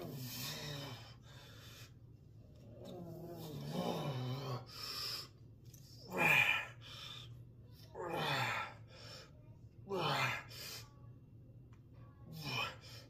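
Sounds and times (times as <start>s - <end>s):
heavy breathing: 0.0s - 2.1s
man groaning: 3.1s - 4.7s, 6.0s - 6.8s, 8.0s - 8.7s, 9.9s - 10.5s.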